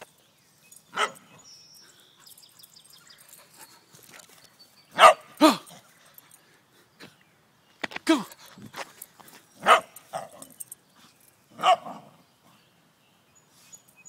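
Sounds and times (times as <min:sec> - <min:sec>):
dog barking: 0:01.0 - 0:01.2, 0:05.0 - 0:05.6, 0:09.6 - 0:10.4, 0:11.6 - 0:12.1.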